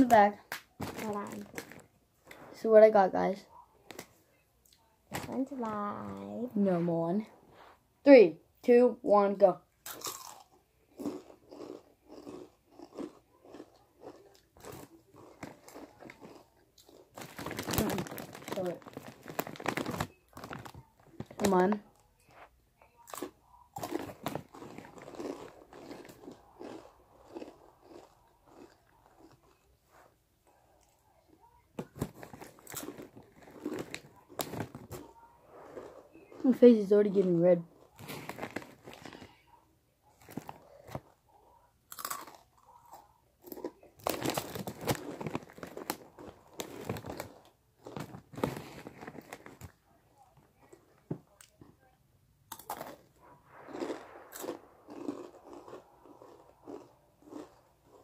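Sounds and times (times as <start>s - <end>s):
chewing crunchy chips: 9.8s - 21.6s, 23.0s - 29.8s, 31.8s - 36.6s, 37.7s - 39.5s, 41.9s - 49.8s, 52.5s - 58.0s
chips being crunched: 52.5s - 58.0s.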